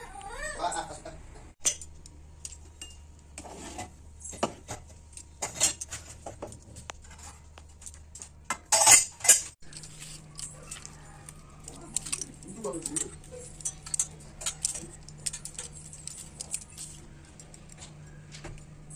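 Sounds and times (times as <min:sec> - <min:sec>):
metal pots and utensils clinking: 0:01.6 - 0:17.0.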